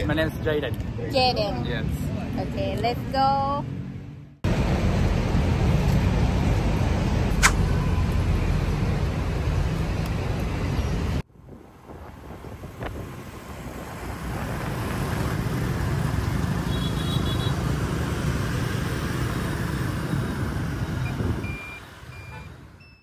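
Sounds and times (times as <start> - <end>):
scooter engine and road noise: 0.0 - 23.0
wind rush on microphone: 10.9 - 15.8, 19.9 - 21.6.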